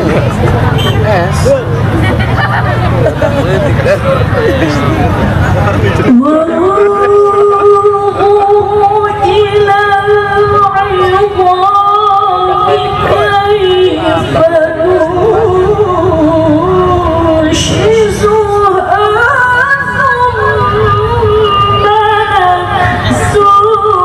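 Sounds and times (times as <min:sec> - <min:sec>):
woman chanting recitation: 0:06.1 - 0:24.0.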